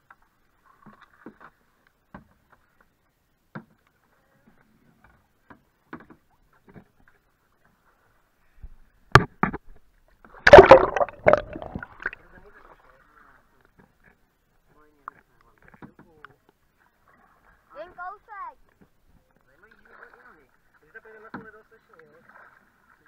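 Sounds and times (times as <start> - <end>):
paddle strokes in water: 0.1 - 3.0, 16.7 - 23.0.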